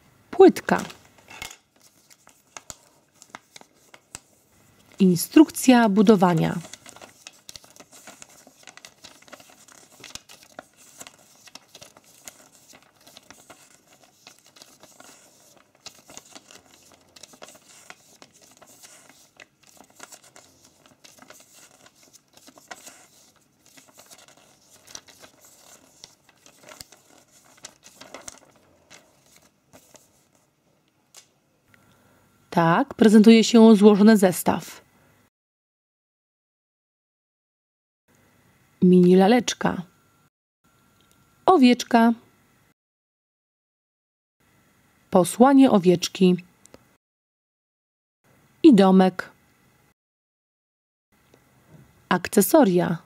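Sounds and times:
paper pages rustling: 0.6 - 30.5.

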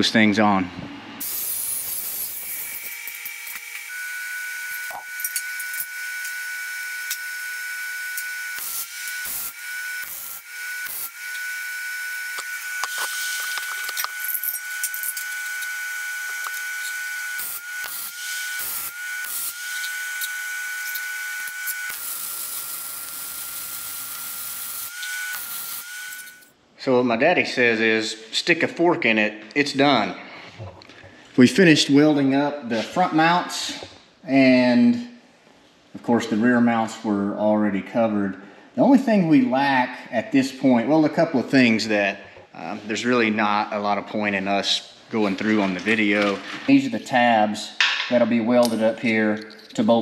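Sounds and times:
welder crackling hiss: 1.2 - 3.9, 4.7 - 11.5, 12.1 - 26.4.

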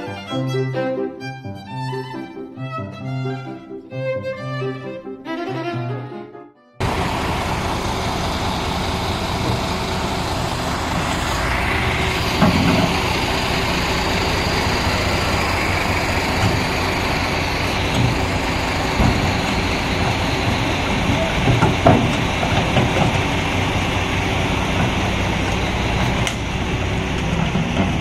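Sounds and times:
diesel engine running: 6.8 - 28.0
dull knocks: 17.8 - 23.4.

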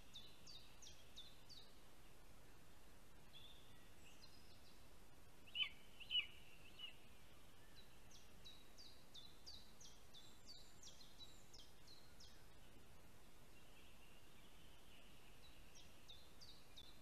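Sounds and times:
faint steady hiss: 0.0 - 17.0
sharp bird calls: 5.4 - 7.1.

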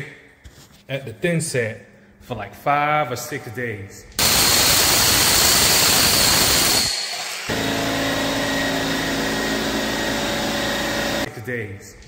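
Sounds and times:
dense rushing machine noise: 4.2 - 11.3
motor hum with whine: 7.5 - 11.3.

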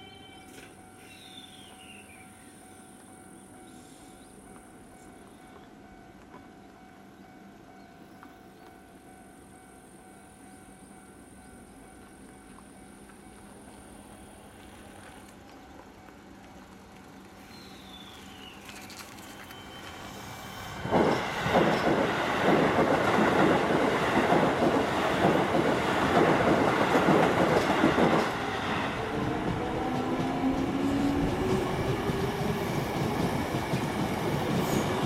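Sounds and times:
rail joints clickety-clack: 0.0 - 35.0
train wheels rushing on rails: 11.9 - 35.0.

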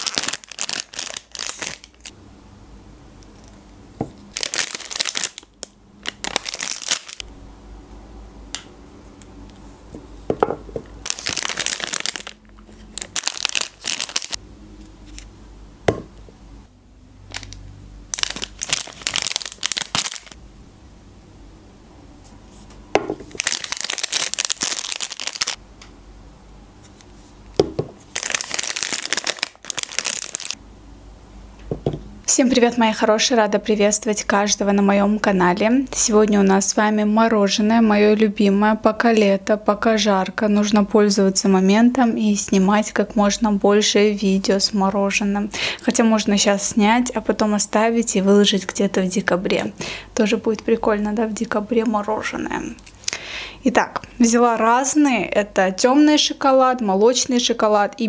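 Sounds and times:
wrappers crinkling: 0.0 - 2.1, 4.3 - 7.2, 11.0 - 14.4, 17.3 - 20.4, 23.2 - 25.6, 28.1 - 30.6.

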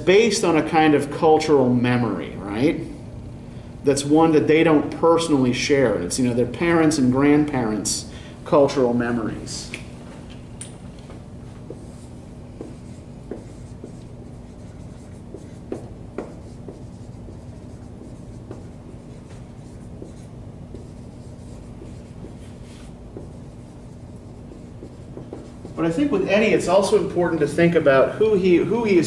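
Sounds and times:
low room hum: 0.0 - 29.0
pen scratching and tapping: 11.6 - 25.9.

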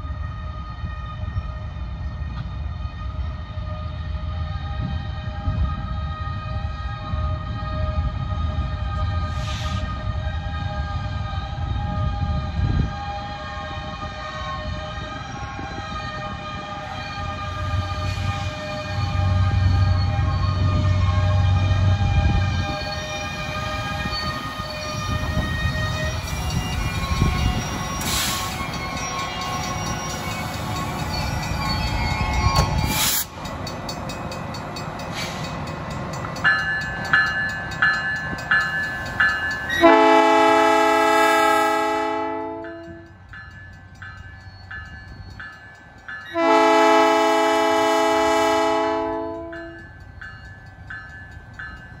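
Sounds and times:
diesel locomotive rumbling: 0.0 - 52.0
train horn blasts: 39.7 - 43.1, 46.3 - 49.8.

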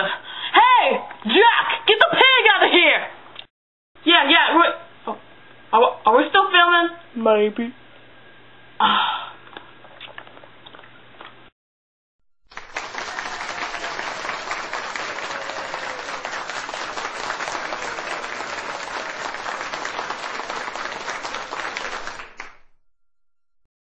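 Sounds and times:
crowd applauding: 12.5 - 22.8.

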